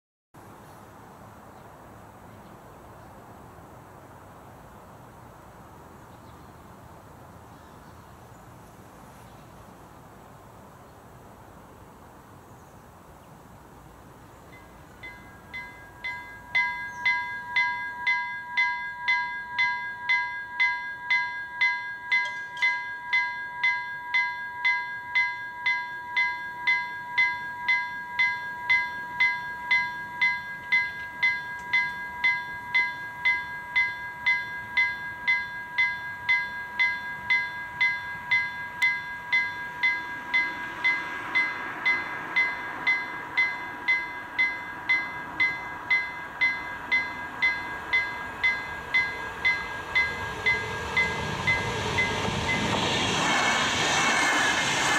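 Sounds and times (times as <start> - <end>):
level crossing warning bell: 14.5 - 52.8
train rushing: 26.0 - 54.9.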